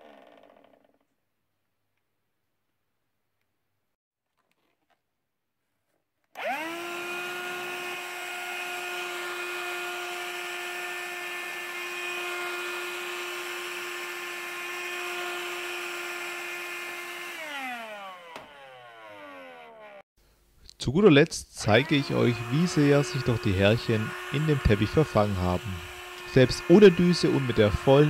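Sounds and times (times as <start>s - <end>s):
hand vacuum motor whining: 0.0s - 0.8s, 6.3s - 20.1s, 21.6s - 28.0s.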